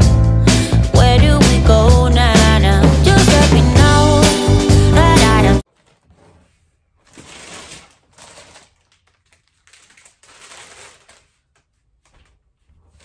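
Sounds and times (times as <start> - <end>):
plastic wrapping crinkling: 5.6 - 13.0.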